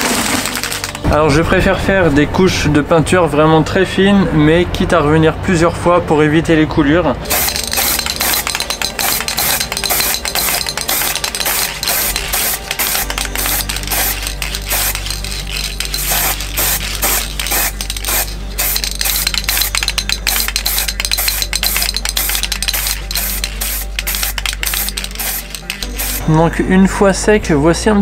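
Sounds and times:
spray can ball rattling: 0.0s - 1.1s, 7.3s - 26.3s
spray hiss: 7.3s - 26.3s.

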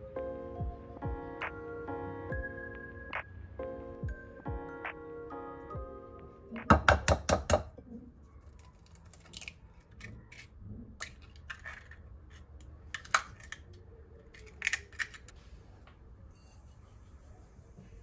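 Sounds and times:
small objects clicking and tapping: 8.4s - 15.4s.

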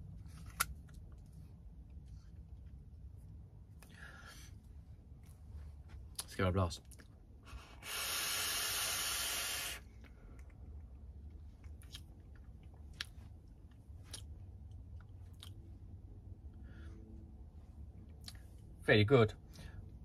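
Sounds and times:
hiss of vape draw: 7.6s - 9.9s.

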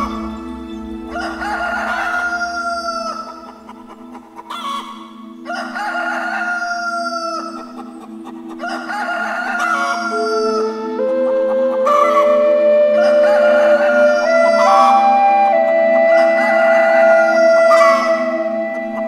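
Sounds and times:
background music tones: 0.0s - 19.0s
rooster crowing: 1.0s - 3.5s, 4.5s - 7.6s, 8.6s - 10.7s, 13.0s - 15.1s, 16.1s - 18.4s.

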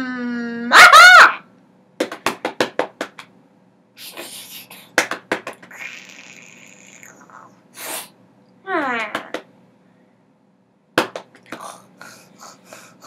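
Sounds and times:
mouth hissing: 5.7s - 8.2s.

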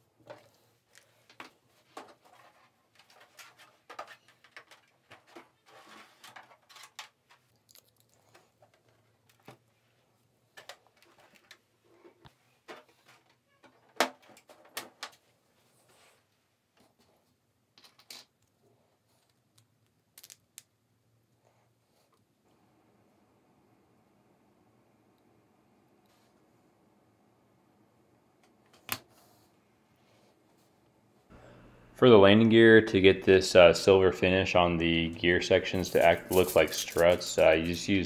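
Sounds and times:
plastic parts clicking and knocking: 1.3s - 9.6s, 10.5s - 15.2s.

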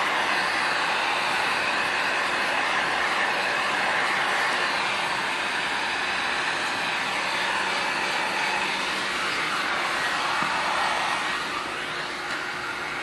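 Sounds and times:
heat gun blower running: 0.0s - 13.0s.

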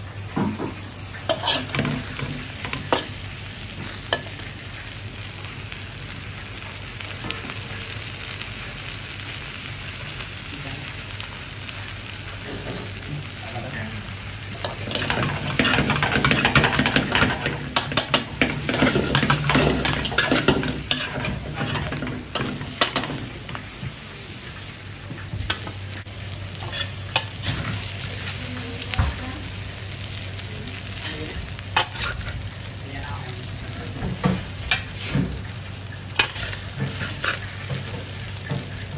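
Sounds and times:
food sizzling in a wok: 0.0s - 38.9s
metal spatula scraping wok: 1.3s - 3.1s, 14.6s - 23.6s, 26.6s - 28.0s, 31.8s - 32.4s, 36.1s - 38.6s.

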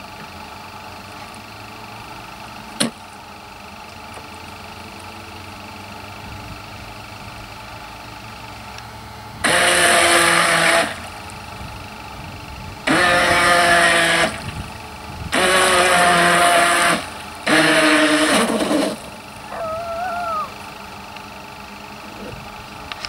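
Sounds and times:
model speedboat motor whining: 15.4s - 20.6s.

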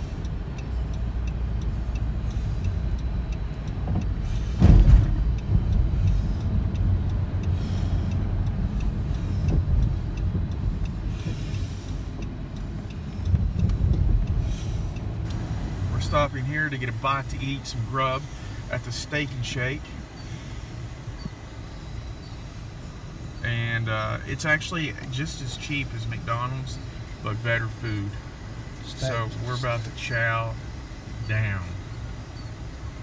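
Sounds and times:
road and engine rumble in van: 0.0s - 33.0s
loud thump: 4.6s - 5.2s.

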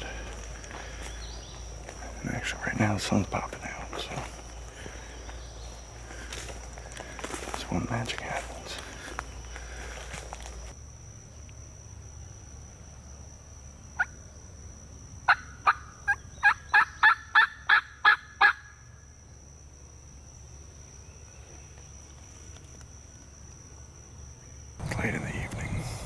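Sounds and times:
turkey call yelps: 15.3s - 18.7s.

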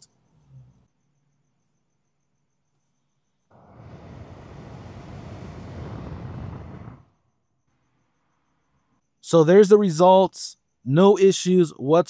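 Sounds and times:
blower fan rush of air: 3.5s - 7.2s.

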